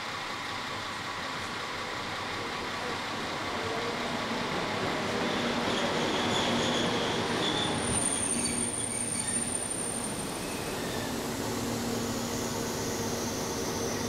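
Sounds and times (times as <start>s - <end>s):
high brake squeals: 5.6s - 14.0s.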